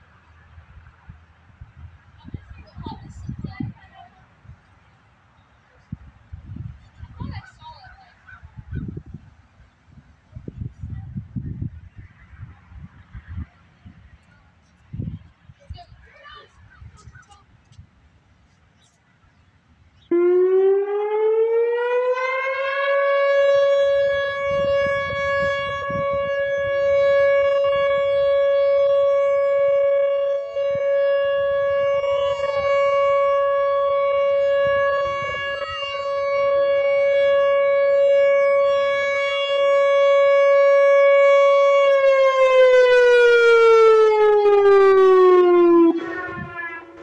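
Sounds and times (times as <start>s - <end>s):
electronic warning siren: 20.1s - 47.0s.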